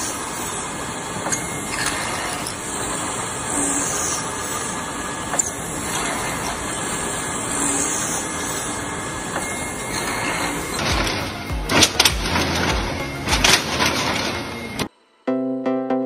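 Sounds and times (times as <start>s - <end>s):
wood lathe hissing and whirring: 0.0s - 14.9s.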